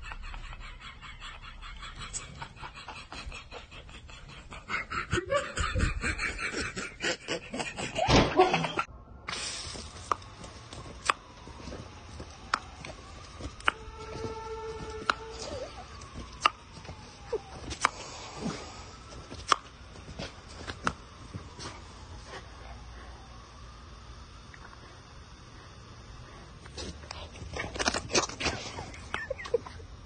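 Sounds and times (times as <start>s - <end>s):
person laughing: 0.0s - 8.9s, 15.3s - 16.3s, 17.0s - 17.6s, 28.4s - 30.0s
hose spray nozzle hissing: 9.3s - 10.5s.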